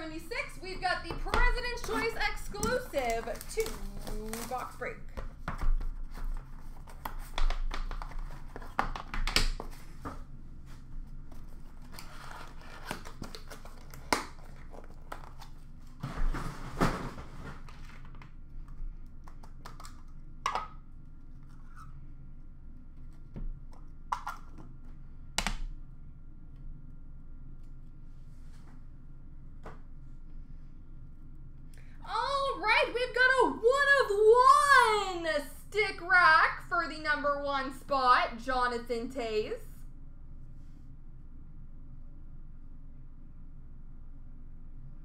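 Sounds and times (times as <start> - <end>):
plastic wrap tearing and crumpling: 2.8 - 4.8, 11.8 - 15.6.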